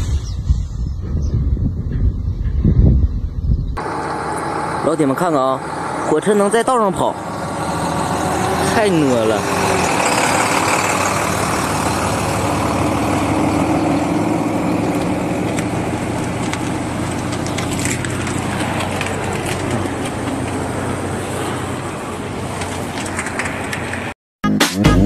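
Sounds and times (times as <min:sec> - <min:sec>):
truck diesel engine running: 0:03.8 - 0:23.8
tyres rolling on packed snow: 0:08.4 - 0:24.1.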